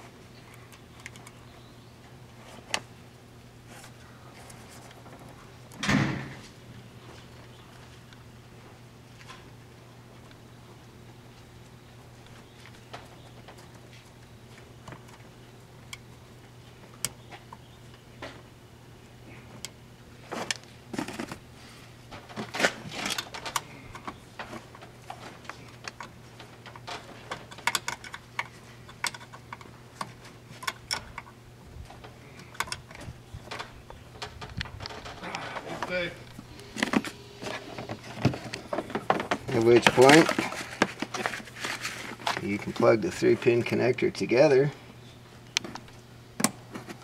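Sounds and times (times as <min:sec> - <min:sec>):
steady low hum: 0:00.0 - 0:47.0
small clicks and rattles of wiring: 0:22.1 - 0:31.3.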